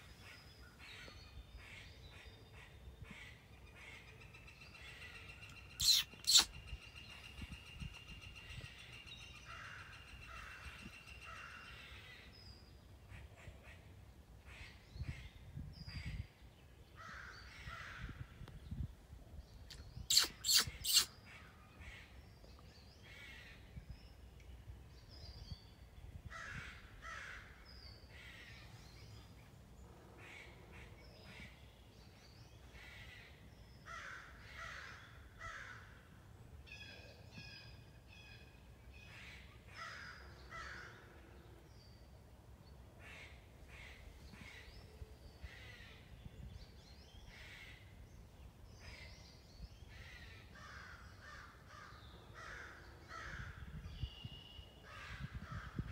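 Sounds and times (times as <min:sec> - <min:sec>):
crows cawing: 0:33.9 - 0:36.0, 0:39.8 - 0:41.1, 0:50.5 - 0:53.6.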